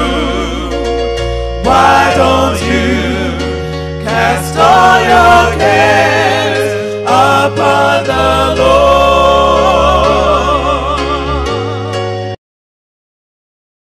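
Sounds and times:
gospel choir singing: 0:00.0 - 0:12.4
held bass notes: 0:00.0 - 0:12.4.

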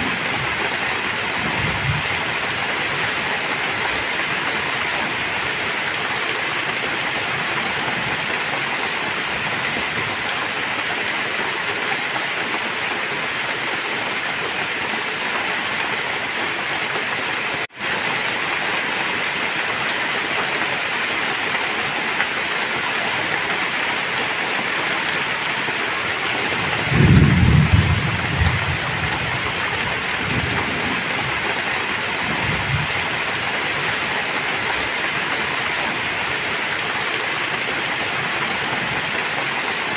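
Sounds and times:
heavy rain: 0:00.0 - 0:39.9
thunder rumbling: 0:26.6 - 0:31.4.

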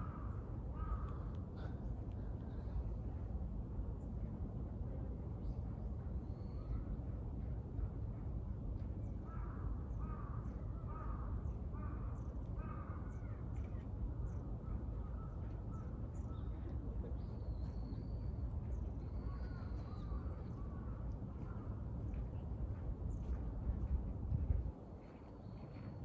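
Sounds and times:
crow cawing: 0:00.0 - 0:01.2.

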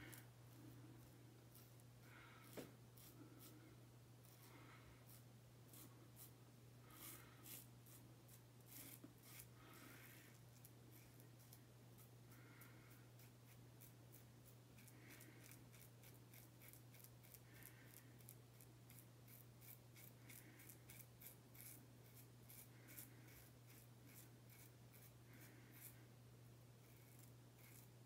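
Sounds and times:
razor scraping stubble: 0:06.9 - 0:09.5, 0:18.9 - 0:25.1, 0:26.8 - 0:28.0.

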